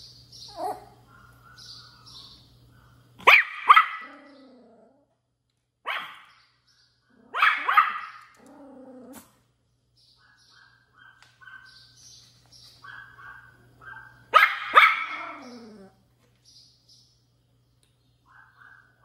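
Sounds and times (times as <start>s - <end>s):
puppy barking in high yaps: 3.2s - 4.2s, 5.8s - 6.3s, 7.3s - 8.4s, 10.3s - 11.8s, 12.8s - 15.9s
puppy whining: 15.1s - 16.0s.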